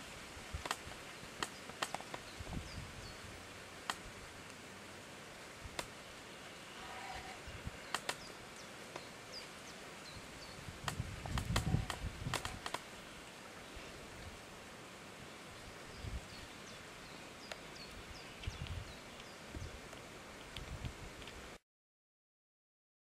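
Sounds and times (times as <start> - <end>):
faint steady hiss: 0.0 - 21.6
sharp clicks: 0.6 - 2.2, 7.9 - 8.3, 10.8 - 12.9.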